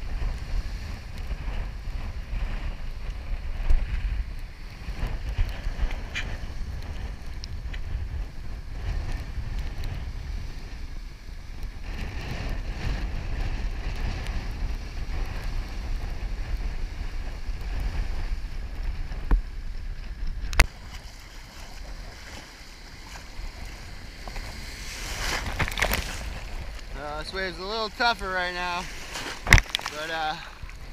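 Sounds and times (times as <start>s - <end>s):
wind buffeting microphone: 0.0s - 30.9s
surf breaking on rocks: 17.3s - 30.9s.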